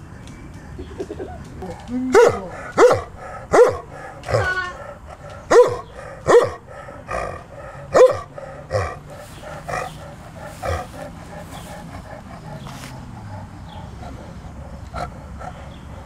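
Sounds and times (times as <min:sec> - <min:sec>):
dog barking: 0:02.1 - 0:15.2.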